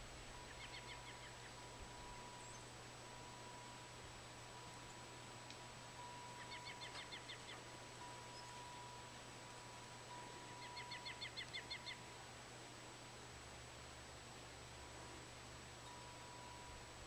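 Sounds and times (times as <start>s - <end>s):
steady hiss: 0.0s - 17.0s
songbird trilling: 0.4s - 2.7s, 6.0s - 9.1s, 10.1s - 12.0s.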